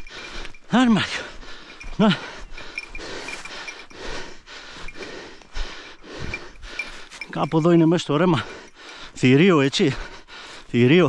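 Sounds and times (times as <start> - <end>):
heavy breathing: 0.0 - 11.0
footsteps through brush: 4.7 - 8.1.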